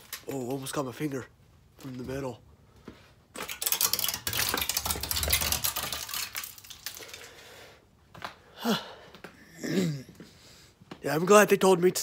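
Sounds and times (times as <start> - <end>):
ice clinking and cracking: 3.4 - 7.4.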